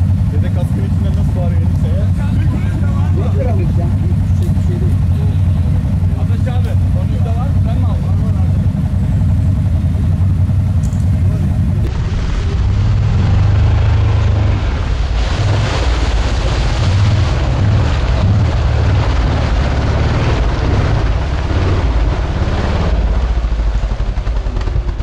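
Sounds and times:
atv engine running under load: 0.0s - 25.0s
tyres churning mud: 0.0s - 25.0s.

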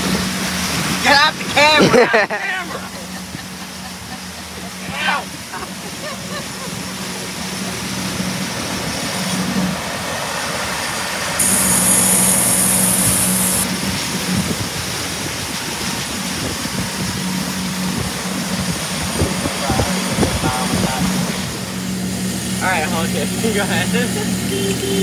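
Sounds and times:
hiss of churning wake: 0.0s - 24.5s
outboard motor humming: 0.0s - 25.0s.

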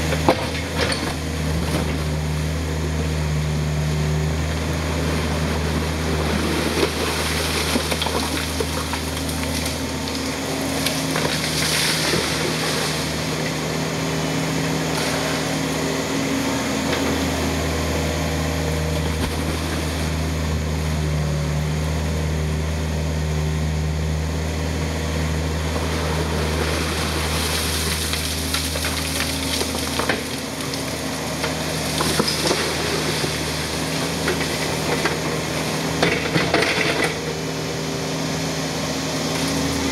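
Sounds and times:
excavator diesel engine: 0.0s - 39.9s
water splashing and sloshing: 5.5s - 13.5s, 19.0s - 20.3s, 25.8s - 37.2s.

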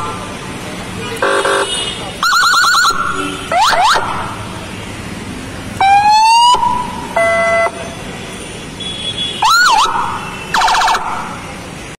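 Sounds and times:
electronic siren tones: 9.5s - 11.3s.

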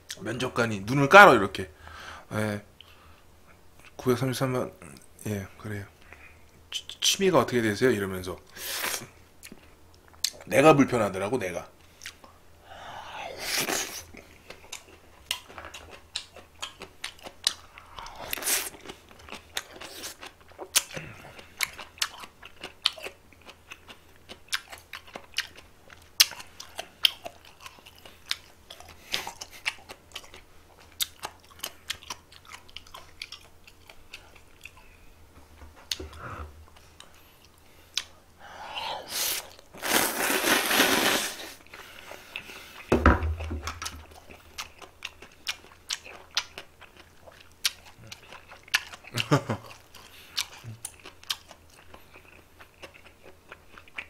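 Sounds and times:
person chewing and crunching food: 11.8s - 12.4s, 13.1s - 35.1s, 35.8s - 54.0s.

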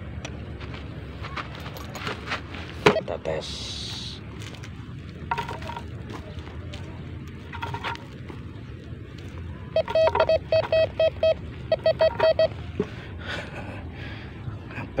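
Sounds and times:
metal detector beeping: 2.9s - 3.1s, 5.3s - 5.8s, 7.5s - 8.1s, 9.7s - 12.8s.

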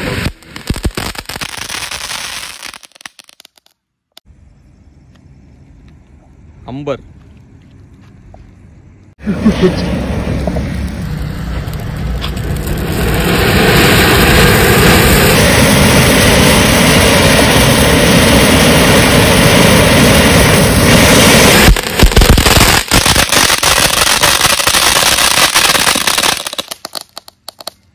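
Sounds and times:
firework fountain hissing: 0.0s - 3.5s, 9.2s - 27.7s
firework crackling: 0.0s - 3.7s, 9.2s - 27.8s.

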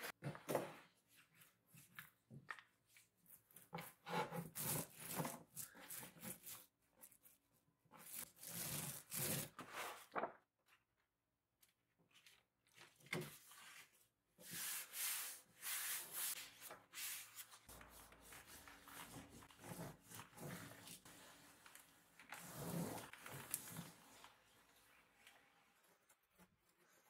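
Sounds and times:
paint roller spreading glue: 2.9s - 10.0s, 13.3s - 27.0s
hands smoothing veneer sheet: 14.4s - 21.8s.

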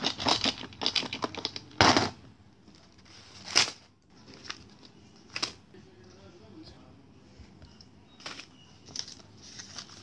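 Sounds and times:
plastic packets crinkling: 0.0s - 5.6s, 8.2s - 10.0s
paper rustling: 8.2s - 10.0s.

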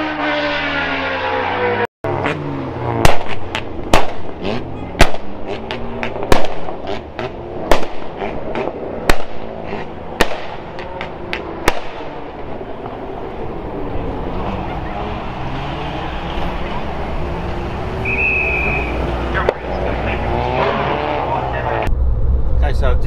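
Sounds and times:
car engine revving: 0.0s - 23.0s
exhaust bangs and pops: 3.0s - 13.0s.

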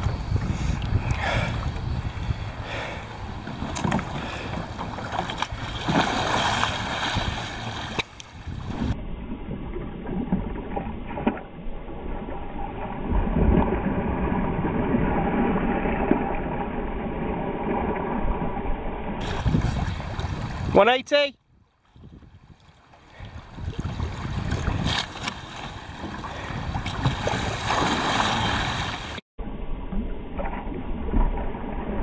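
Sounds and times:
wind buffeting microphone: 0.0s - 9.0s, 19.2s - 20.8s, 21.4s - 29.2s
water sloshing around kayak: 0.0s - 11.4s, 19.2s - 20.8s, 21.8s - 29.2s.

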